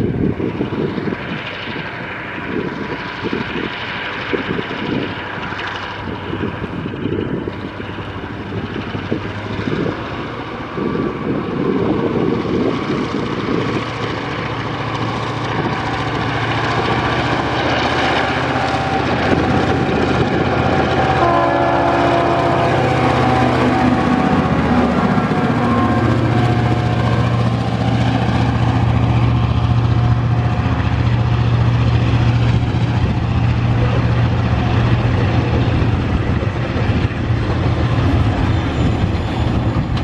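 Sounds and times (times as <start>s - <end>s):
diesel locomotive engines running hard: 0.0s - 40.0s
steady tones: 12.8s - 40.0s.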